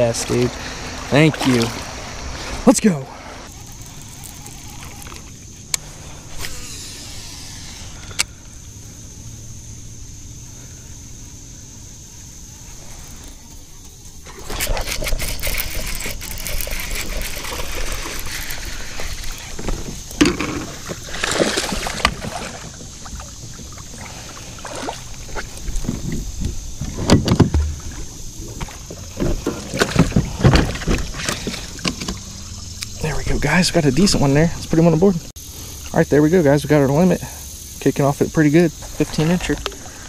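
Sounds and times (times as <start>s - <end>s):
water splashing and sloshing: 0.0s - 8.1s, 12.6s - 35.3s, 38.8s - 40.0s
knocks and rattles from kayak hull: 19.0s - 24.0s, 24.7s - 32.3s.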